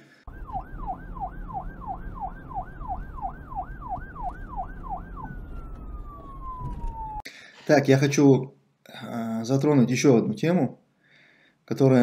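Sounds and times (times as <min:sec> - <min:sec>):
siren yelp: 0:00.2 - 0:07.3
siren tone sliding downward: 0:00.3 - 0:07.2.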